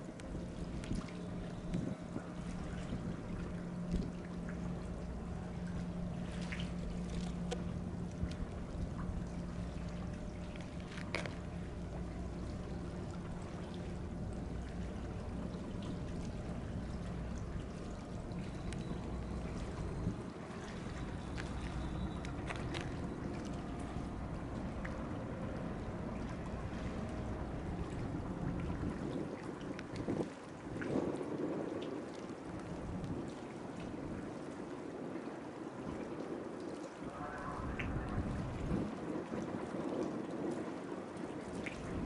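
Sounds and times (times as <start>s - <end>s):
steady low hum: 0.0s - 42.0s
water lapping and trickling: 0.0s - 42.0s
faint clicks: 18.4s - 19.0s.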